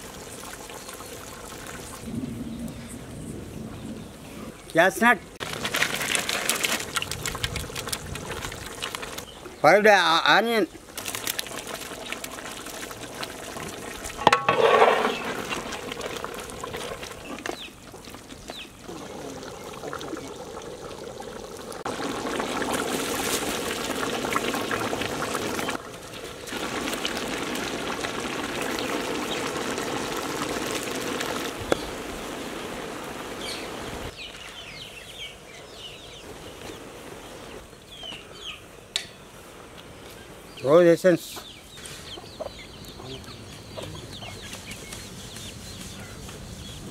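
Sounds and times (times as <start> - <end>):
rice falling into simmering sauce: 10.9 - 21.2, 21.8 - 32.1.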